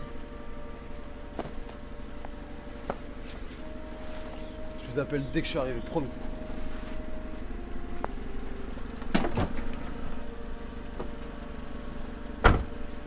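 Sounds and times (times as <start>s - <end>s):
car engine idling: 0.0s - 13.0s
car boot knock: 12.4s - 12.8s.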